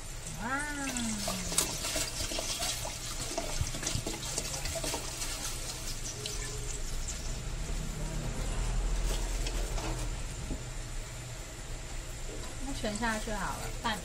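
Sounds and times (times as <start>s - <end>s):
liquid pouring into a pot: 0.0s - 8.0s.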